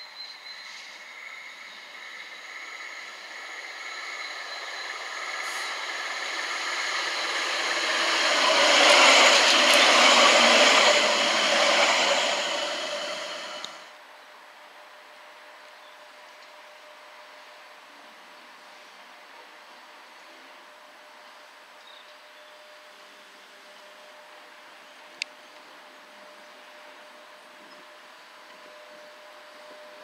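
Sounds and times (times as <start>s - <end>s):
tram passing on rails: 0.0s - 14.0s.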